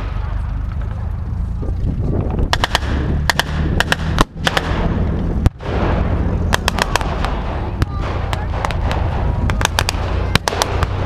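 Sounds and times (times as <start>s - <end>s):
heavy boom: 2.3s - 11.0s
rifle and machine-gun shots: 2.5s - 11.0s.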